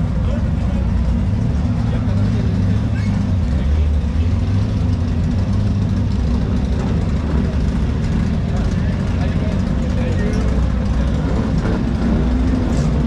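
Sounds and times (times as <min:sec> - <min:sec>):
buggy engine idling: 0:00.0 - 0:13.0
crowd voices: 0:00.0 - 0:13.0.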